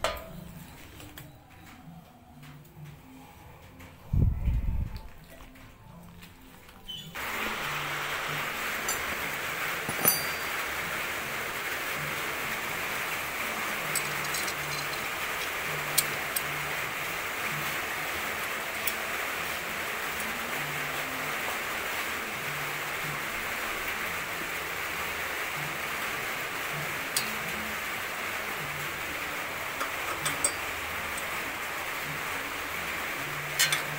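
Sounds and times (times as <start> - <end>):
steady background hiss: 7.2 - 33.9.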